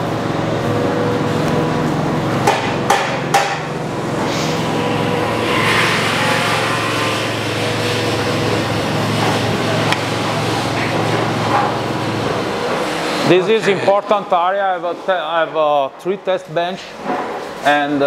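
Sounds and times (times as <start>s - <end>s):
factory machinery din: 0.0s - 15.1s
sharp knocks: 2.4s - 3.7s.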